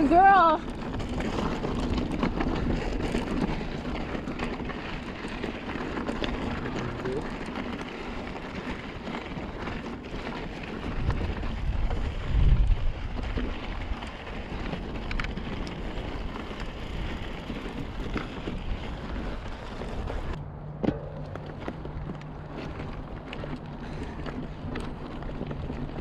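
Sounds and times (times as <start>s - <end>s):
bike rattling: 0.0s - 26.0s
bike tyres crunching on gravel: 0.0s - 26.0s
wind on microphone: 10.8s - 14.1s
steady low buzz: 20.3s - 23.0s.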